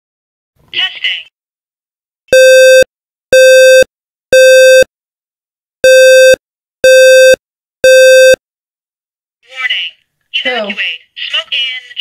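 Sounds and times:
smoke alarm beeping: 0:05.8 - 0:08.4.

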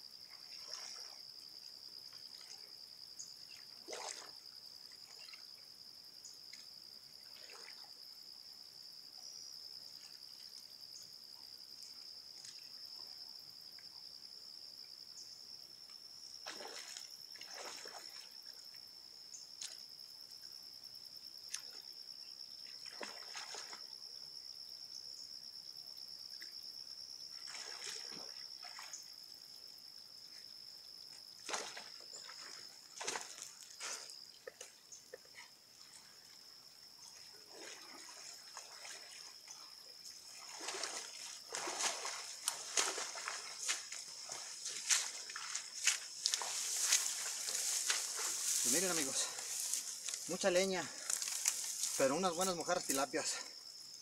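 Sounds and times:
water splashing and dripping: 0:16.4 - 0:18.4, 0:22.8 - 0:23.9, 0:27.4 - 0:29.1, 0:31.4 - 0:36.4, 0:37.2 - 0:53.5.

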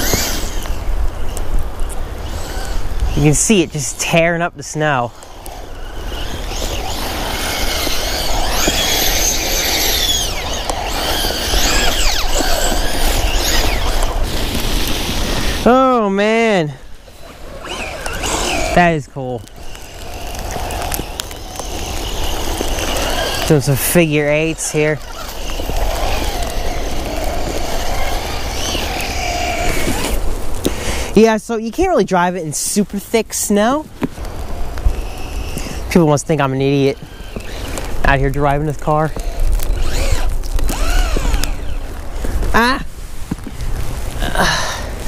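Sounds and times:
electric motor whine: 0:00.0 - 0:16.1, 0:16.9 - 0:18.8, 0:19.4 - 0:30.7, 0:34.3 - 0:42.4
truck churning through snow: 0:00.0 - 0:31.1, 0:38.8 - 0:42.5.

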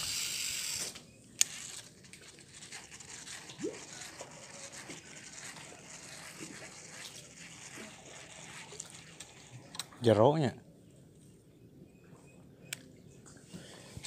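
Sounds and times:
fishing line hissing out: 0:00.0 - 0:01.9
fishing reel winding: 0:00.0 - 0:09.4.

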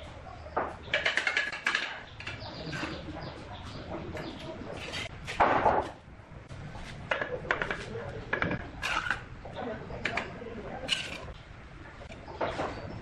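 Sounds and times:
trowel scraping mortar and brick: 0:04.7 - 0:05.2, 0:10.9 - 0:11.4.

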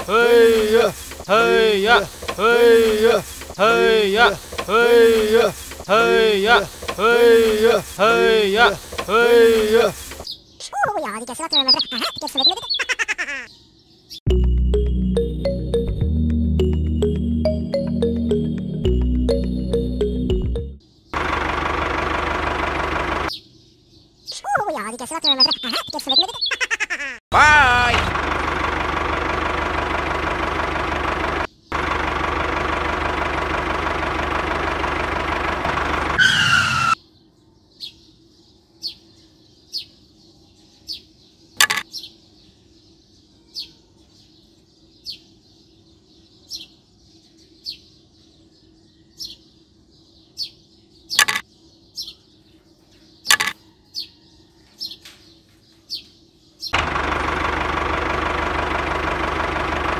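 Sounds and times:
engine running: 0:00.0 - 0:10.2, 0:14.3 - 0:23.3, 0:27.4 - 0:37.0, 0:56.8 - 0:59.9
birds chirping: 0:00.0 - 0:16.0, 0:22.1 - 0:28.1, 0:35.7 - 0:58.4.

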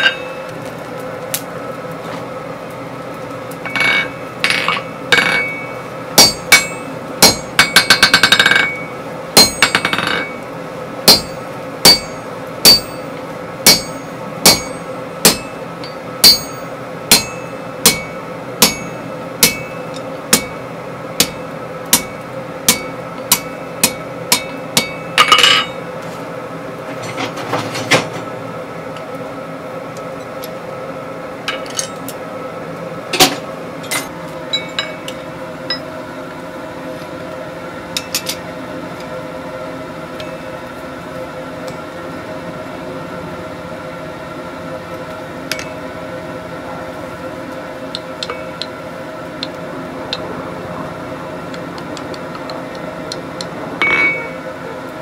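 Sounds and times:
hammer ringing on anvil: 0:00.0 - 0:00.5, 0:03.7 - 0:10.4, 0:11.1 - 0:20.6, 0:21.2 - 0:25.8, 0:33.9 - 0:35.9, 0:53.8 - 0:54.4
faint steady hum: 0:00.0 - 0:27.3.

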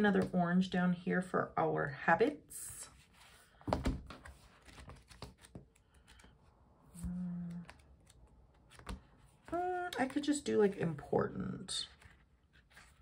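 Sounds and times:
stiff pages rustling: 0:02.9 - 0:11.1, 0:11.8 - 0:13.0
person humming: 0:07.0 - 0:07.8.

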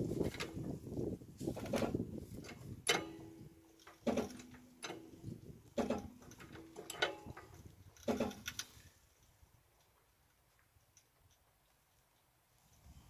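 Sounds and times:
trolley jack clacking and ringing: 0:02.9 - 0:05.2, 0:05.8 - 0:08.6.

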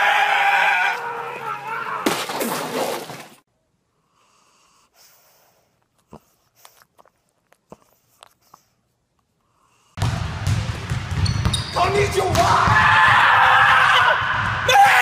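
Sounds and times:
man yelling angrily: 0:11.9 - 0:15.0.

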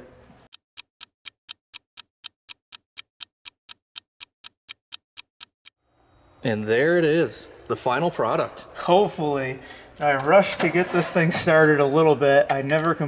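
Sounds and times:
clock ticking: 0:00.5 - 0:05.8.

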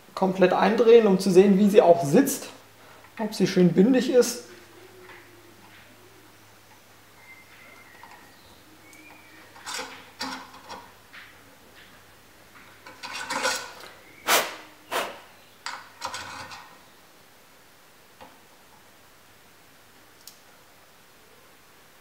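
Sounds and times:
screw scraping and clicking in wood: 0:12.8 - 0:13.9.

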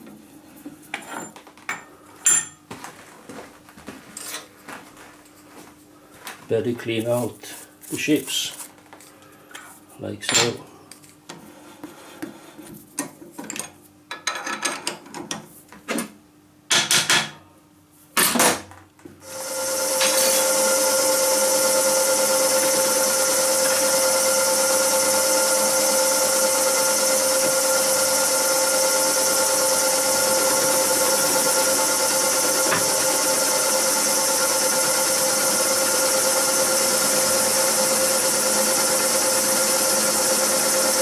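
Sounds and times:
milling machine cutting steel: 0:19.3 - 0:41.0.

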